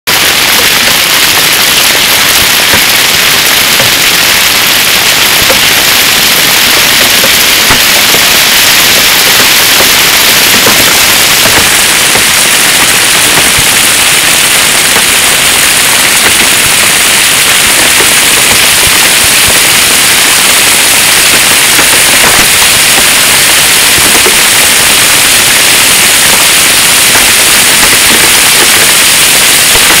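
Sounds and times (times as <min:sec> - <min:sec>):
hailstones pelting the ground: 0:08.0 - 0:30.0.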